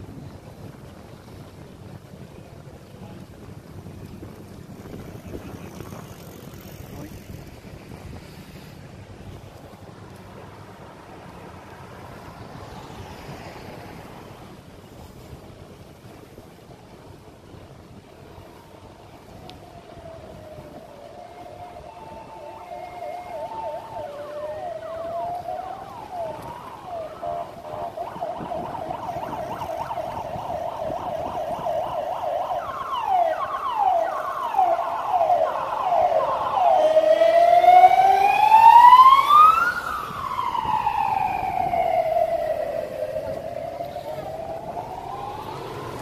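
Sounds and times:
emergency vehicle siren: 10.7s - 14.6s, 17.9s - 46.0s.

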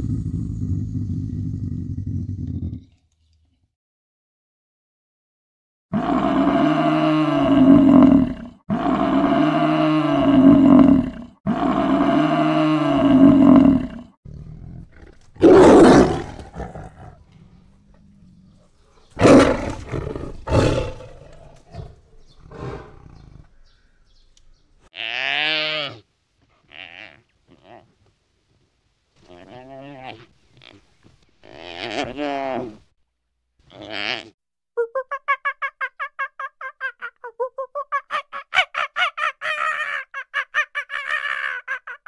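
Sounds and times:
tiger cub growls: 0.0s - 3.0s, 6.0s - 23.8s.

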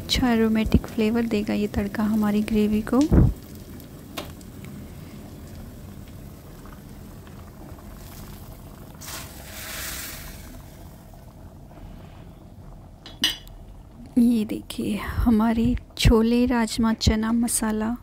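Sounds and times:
hot oil sizzling in gravy: 0.0s - 11.2s.

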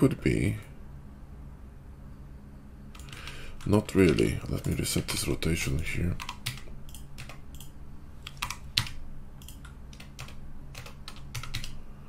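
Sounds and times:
low steady hum: 0.0s - 12.0s
keyboard keys clicking: 3.0s - 5.3s, 6.2s - 11.8s.

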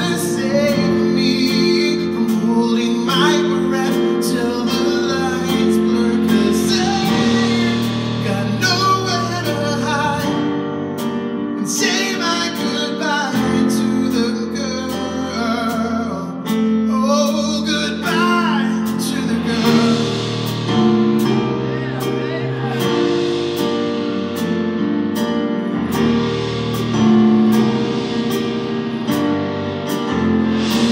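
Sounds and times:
man singing: 0.0s - 10.6s, 11.6s - 23.6s
drums steady beat: 0.0s - 14.2s, 17.2s - 30.9s.

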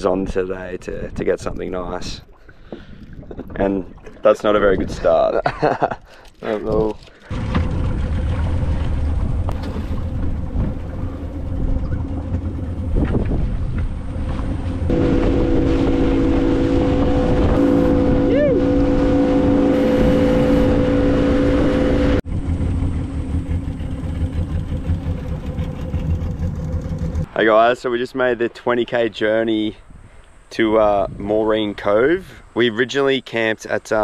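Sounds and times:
outboard motor running: 6.7s - 27.3s
water rushing past hull: 7.0s - 27.4s.

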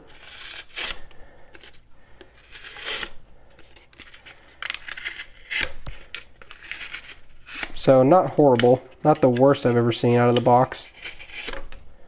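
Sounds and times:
knife slicing through cardboard: 2.4s - 3.2s, 8.6s - 11.7s.

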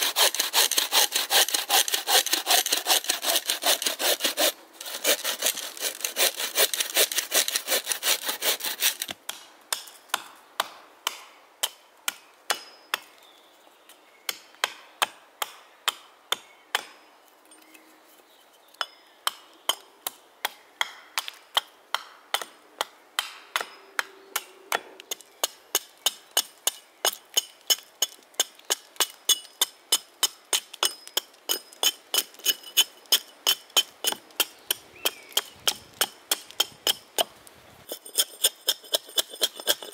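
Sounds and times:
bow saw cutting log: 0.0s - 9.2s
hatchet splitting wood: 0.0s - 13.1s, 20.4s - 39.9s.

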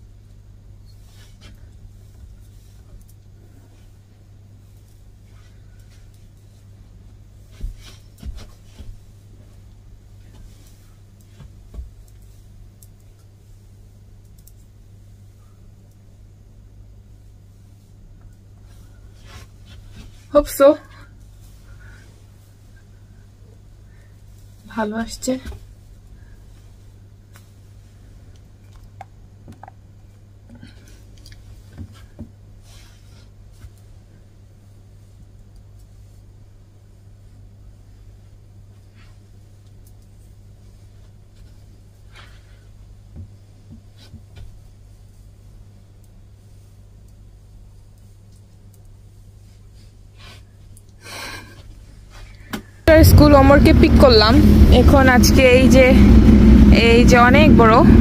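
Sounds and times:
steady low hum: 0.0s - 58.0s
soft rustles: 0.3s - 28.7s, 30.6s - 52.8s
hair thumps and rustles: 0.9s - 14.7s.

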